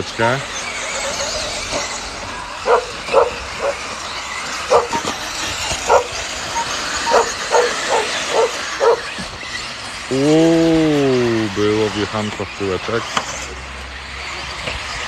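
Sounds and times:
animal barking: 2.6s - 9.2s.

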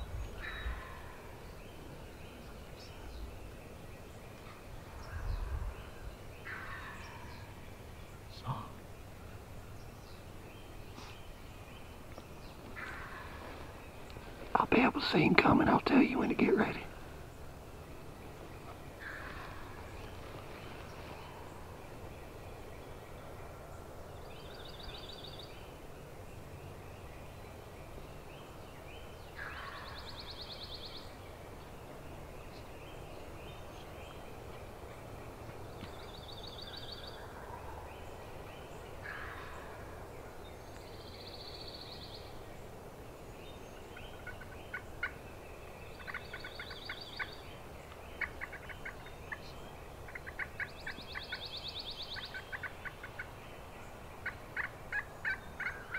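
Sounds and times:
wild turkey gobbling: 44.1s - 45.2s, 46.0s - 47.3s, 48.2s - 49.4s, 50.1s - 51.5s, 52.1s - 53.3s, 54.2s - 55.9s.

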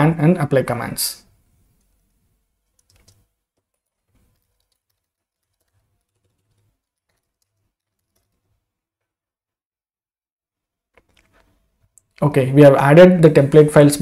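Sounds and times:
computer keyboard typing: 2.6s - 8.6s.

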